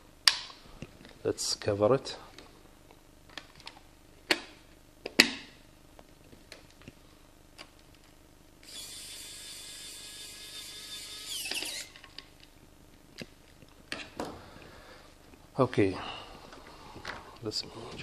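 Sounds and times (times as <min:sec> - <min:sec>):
electric screwdriver whining: 0:08.6 - 0:12.0.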